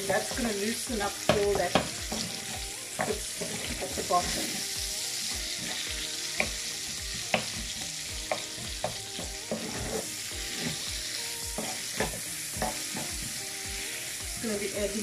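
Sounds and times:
vegetables sizzling in a pan: 0.0 - 15.0
spoon knocking against pan: 7.3 - 10.0, 11.6 - 13.2.

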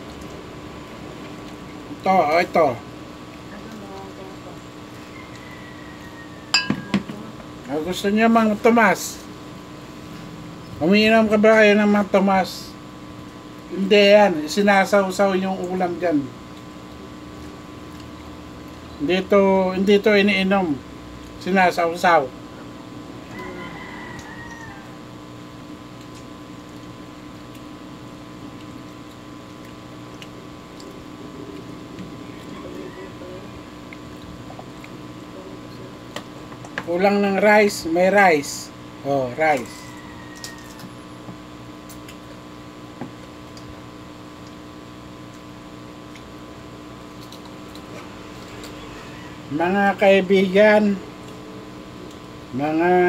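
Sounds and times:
electric fan hum: 0.0 - 53.0
spoon tapping metal pot: 6.5 - 7.2.

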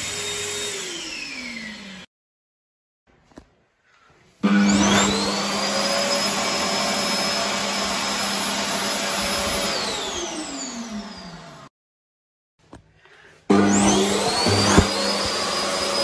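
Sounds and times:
hand dryer running: 0.0 - 2.0, 4.4 - 11.6, 13.5 - 16.0.

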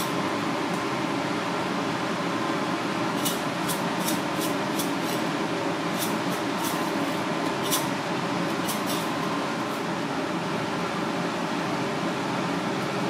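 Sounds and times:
steady background hum: 0.0 - 13.0
seasoning shaker shaking: 6.0 - 7.9, 8.6 - 9.1.

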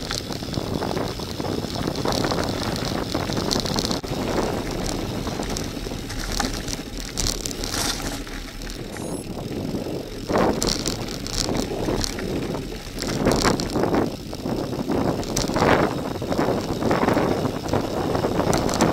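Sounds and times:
bicycle tyres crunching gravel: 0.0 - 18.9
bike rattling: 0.0 - 18.9
wind noise on microphone: 0.0 - 18.9.

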